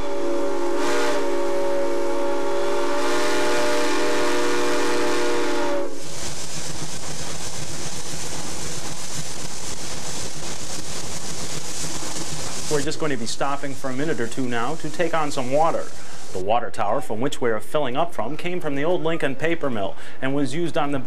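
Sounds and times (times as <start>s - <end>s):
steam locomotive whistle: 0.0s - 6.3s
train rumbling along track: 0.0s - 16.4s.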